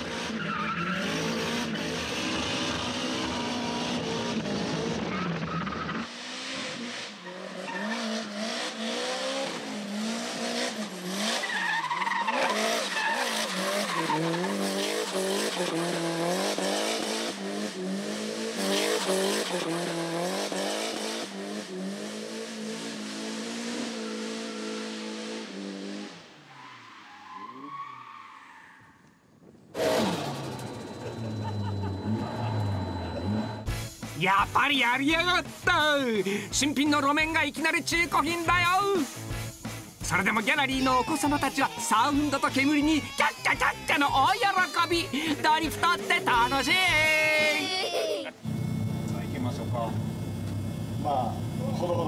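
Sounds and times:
car engine revving: 0:00.0 - 0:27.7, 0:29.8 - 0:47.2, 0:48.4 - 0:52.0
tyres squealing: 0:40.8 - 0:47.9.

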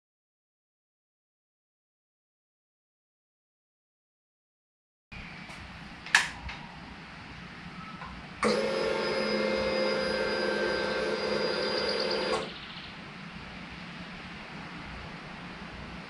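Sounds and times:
small electric motor whirring: 0:08.4 - 0:12.5.

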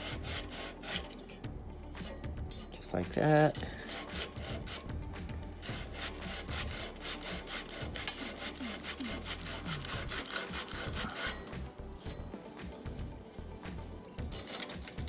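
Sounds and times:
sandpaper rubbing on frame: 0:00.0 - 0:01.2, 0:03.6 - 0:12.1.

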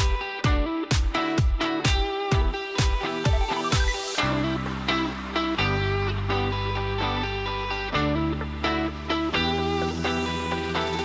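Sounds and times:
sustained low bass notes: 0:04.2 - 0:11.0.

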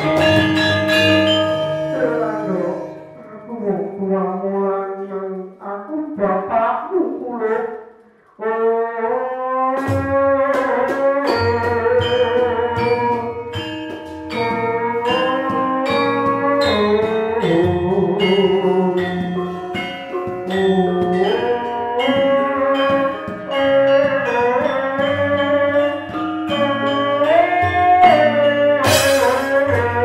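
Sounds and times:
struck percussion beat: 0:00.0 - 0:03.2, 0:09.8 - 0:30.0
gamelan music: 0:00.0 - 0:04.2, 0:09.8 - 0:30.0
sliding melodic line: 0:00.0 - 0:04.2, 0:11.3 - 0:30.0.

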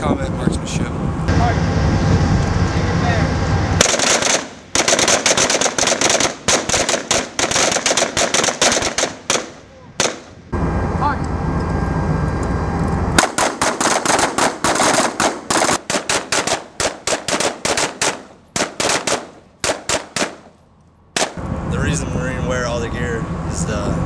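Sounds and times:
steady rushing noise: 0:00.0 - 0:24.0
rifle shots: 0:03.8 - 0:10.4, 0:13.2 - 0:20.6, 0:21.2 - 0:21.4.

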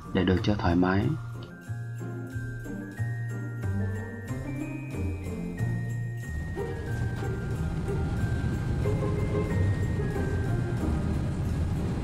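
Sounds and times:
held high notes: 0:03.0 - 0:12.0.

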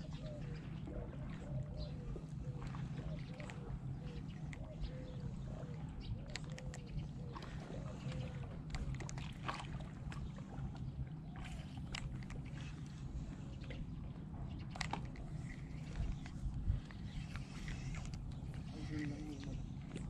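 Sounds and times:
water lapping at shoreline: 0:00.0 - 0:20.0
wind rumble on microphone: 0:00.0 - 0:20.0
faint clicks and ticks: 0:06.0 - 0:07.1, 0:07.9 - 0:20.0.

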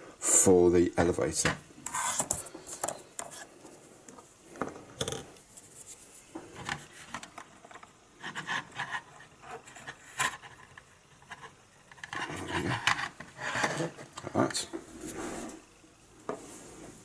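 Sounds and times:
plastic parts clicking and rubbing: 0:06.5 - 0:14.5.

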